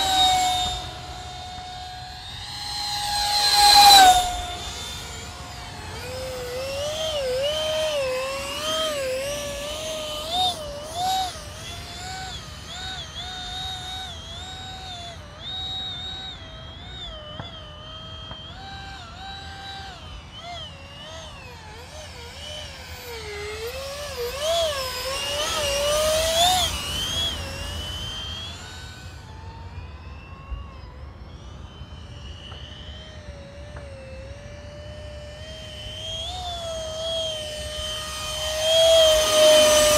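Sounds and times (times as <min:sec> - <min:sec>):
jet rushing past: 0:00.0 - 0:10.6
electric ducted fan whining: 0:00.0 - 0:39.9.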